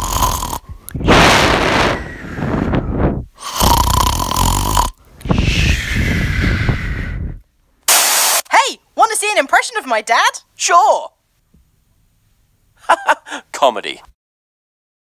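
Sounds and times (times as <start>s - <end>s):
long rasping burp: 0.0s - 2.0s, 3.4s - 5.0s.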